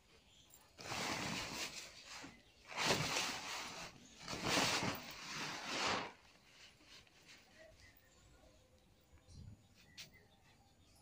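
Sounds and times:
plastic sack rustling: 0.7s - 7.5s.

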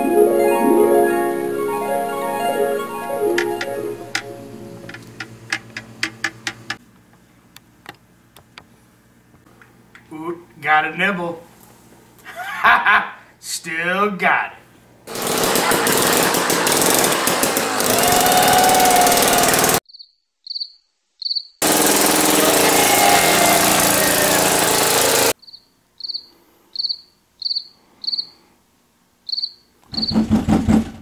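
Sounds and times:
ice auger engine running: 15.1s - 19.8s, 21.6s - 25.4s
cricket chirping: 19.9s - 21.6s, 25.4s - 28.4s, 29.2s - 30.2s.

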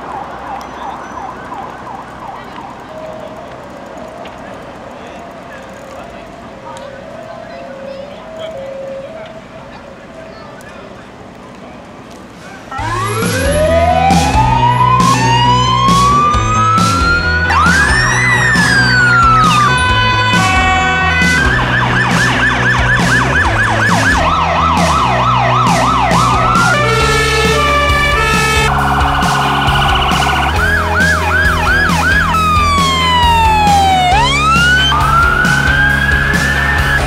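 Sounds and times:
emergency vehicle sirens: 0.0s - 37.0s
background music with steady beat: 12.8s - 37.0s.

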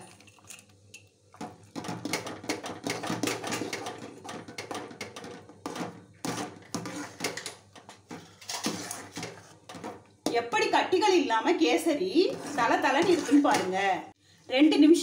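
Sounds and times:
spoon scraping aluminium pan: 1.7s - 10.9s, 11.5s - 14.0s.

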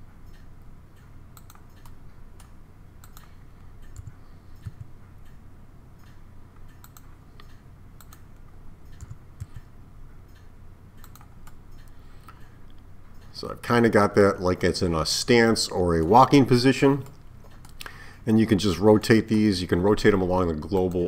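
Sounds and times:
low steady hum: 0.0s - 21.0s
mouse clicks: 0.2s - 5.4s, 6.0s - 9.7s, 10.3s - 12.5s
keyboard typing: 1.4s - 4.9s, 6.8s - 7.1s, 8.9s - 9.7s, 11.0s - 11.9s.

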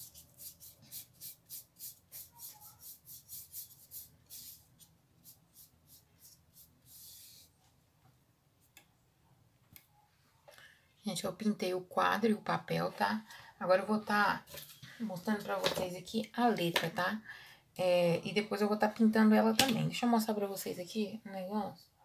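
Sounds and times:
paintbrush strokes on cardboard: 0.0s - 7.7s.

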